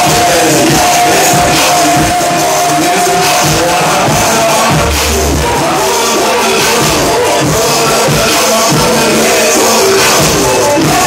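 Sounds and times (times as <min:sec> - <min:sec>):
electronic dance music: 0:00.0 - 0:11.0
held high tone: 0:04.1 - 0:06.1
deep bass note: 0:04.2 - 0:05.8.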